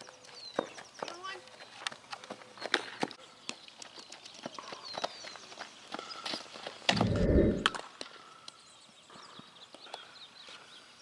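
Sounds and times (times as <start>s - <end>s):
wind buffeting microphone: 6.9s - 7.8s.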